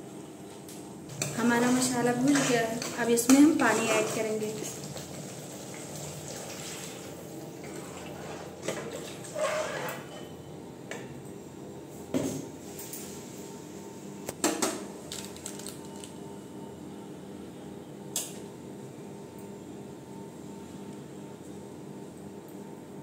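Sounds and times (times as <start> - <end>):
water hissing in hot pan: 3.7 - 7.1.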